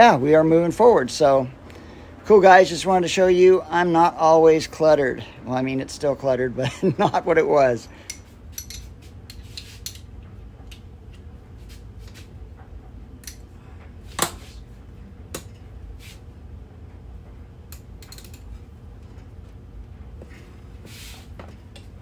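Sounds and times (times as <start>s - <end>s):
metal tools clinking: 8.1s - 9.0s.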